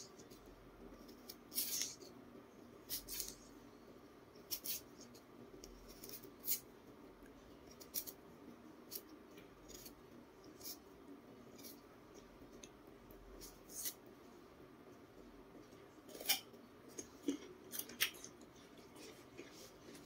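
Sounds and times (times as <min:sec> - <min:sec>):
knife scraping peel: 0:01.0 - 0:02.1, 0:02.9 - 0:03.4, 0:04.5 - 0:04.9, 0:05.7 - 0:06.6, 0:09.7 - 0:10.0, 0:10.6 - 0:10.8, 0:13.4 - 0:14.0, 0:16.1 - 0:16.4.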